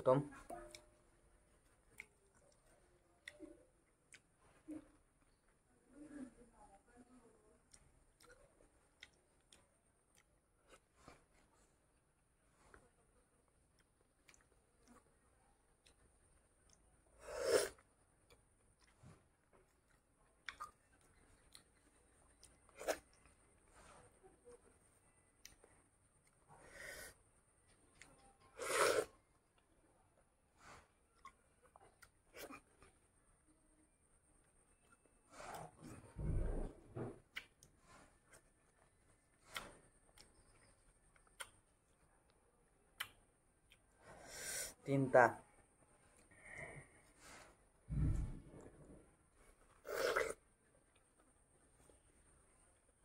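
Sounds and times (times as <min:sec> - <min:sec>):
person chewing wetly: 0:01.6 - 0:05.6, 0:07.6 - 0:17.0, 0:17.7 - 0:23.7, 0:31.1 - 0:33.1, 0:37.2 - 0:42.1.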